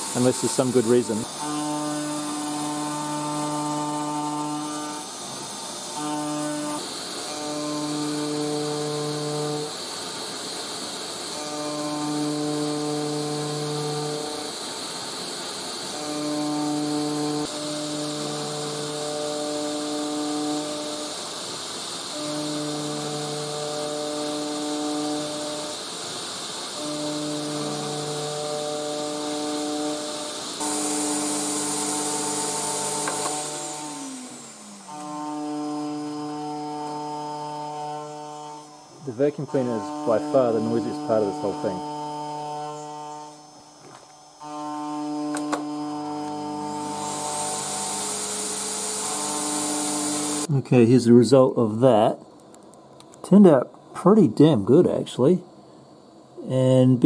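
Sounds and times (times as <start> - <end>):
router cutting tone: 0.0 - 50.5
vacuum cleaner noise: 0.0 - 50.5
vacuum cleaner rushing: 25.3 - 35.1, 45.3 - 50.5.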